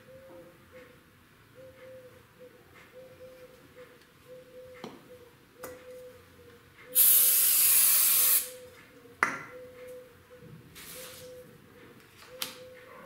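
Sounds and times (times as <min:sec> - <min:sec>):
aerosol spray hiss: 0:07.0 - 0:08.6.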